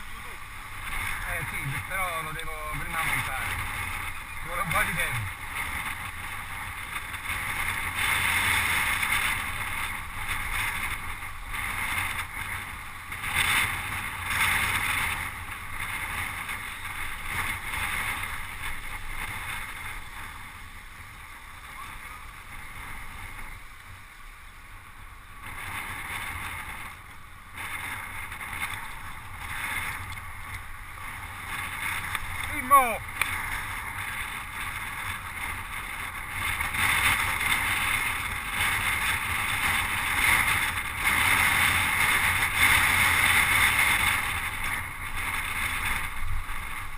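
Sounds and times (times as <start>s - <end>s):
wind rushing over microphone: 0.0s - 46.9s.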